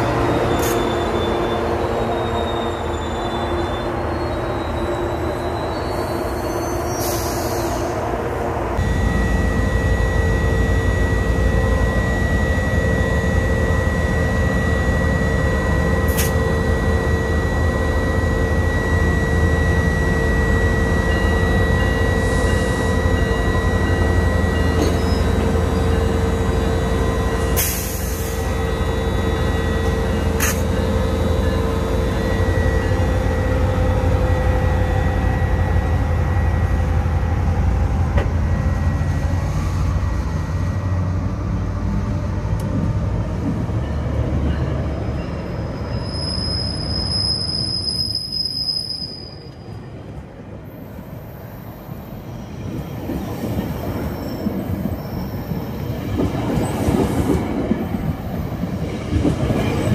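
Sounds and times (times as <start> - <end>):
diesel locomotive engine running: 0.0 - 47.8.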